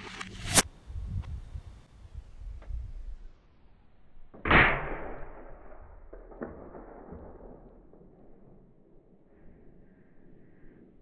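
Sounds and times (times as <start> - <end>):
muffled rifle shot: 4.5 - 7.9.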